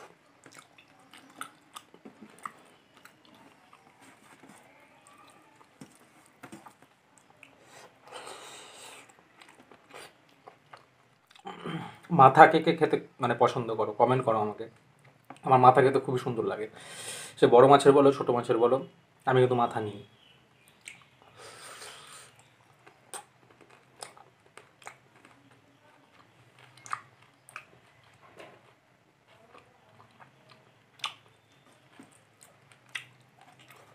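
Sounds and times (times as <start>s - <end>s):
soft chewing and mouth clicks: 0.0s - 12.1s, 14.8s - 15.5s, 20.2s - 33.9s.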